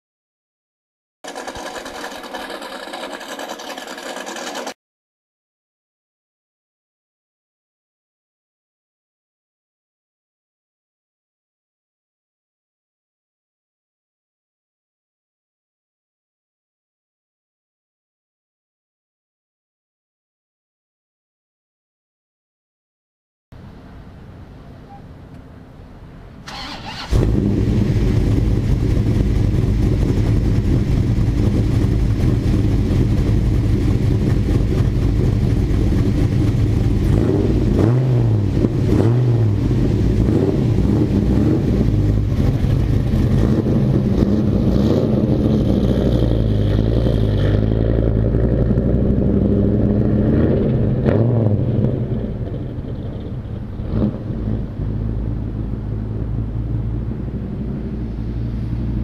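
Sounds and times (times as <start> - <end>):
truck engine revving: 1.2 - 4.8, 26.5 - 58.9.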